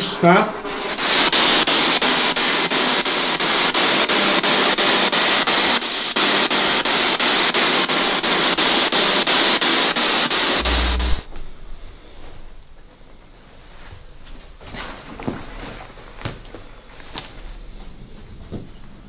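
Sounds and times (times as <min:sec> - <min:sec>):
radio static with clicks: 0:01.6 - 0:11.3.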